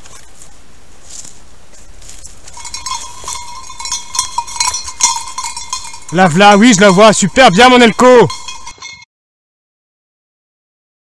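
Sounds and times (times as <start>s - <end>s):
dog collar bell jingling: 2.5s - 9.0s.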